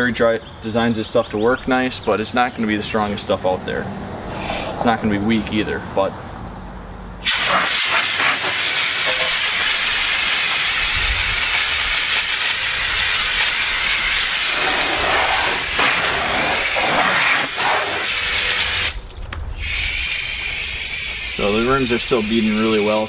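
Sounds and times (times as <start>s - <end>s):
hose spraying water on wheel: 7.2s - 19.0s, 19.6s - 23.0s.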